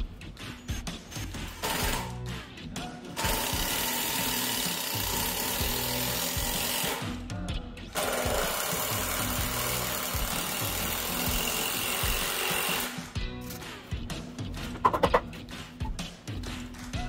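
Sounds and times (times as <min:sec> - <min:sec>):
cordless drill into wood: 0:03.2 - 0:07.0, 0:08.0 - 0:13.0.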